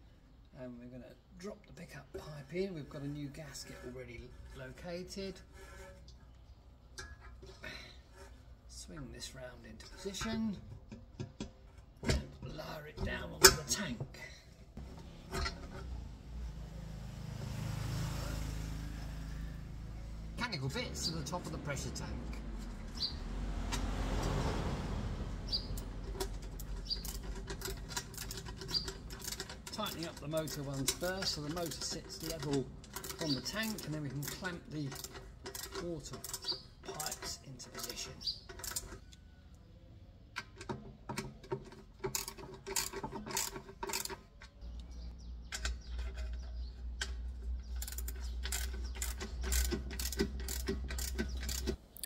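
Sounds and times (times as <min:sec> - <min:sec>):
ratchet wrench clicking: 0:25.6 - 0:38.0, 0:42.1 - 0:44.2, 0:47.7 - 0:52.0.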